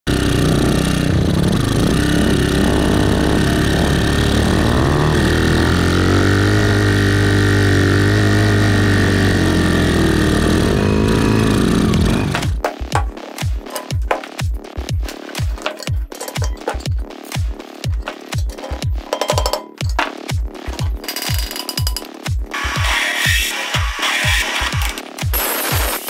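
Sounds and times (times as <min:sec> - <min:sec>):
motorcycle engine revving: 0:00.0 - 0:23.5
music with regular beat: 0:11.8 - 0:26.0.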